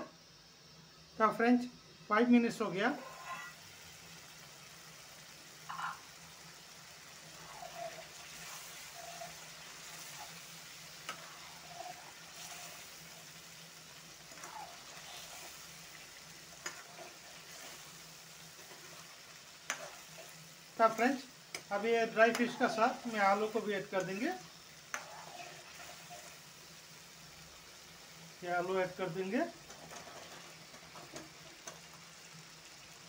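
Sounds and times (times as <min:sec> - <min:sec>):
gravy sizzling in pan: 0:00.0 - 0:33.0
spatula scraping pan: 0:02.9 - 0:03.6, 0:07.3 - 0:13.4, 0:14.1 - 0:24.3, 0:24.9 - 0:26.4, 0:29.6 - 0:31.8.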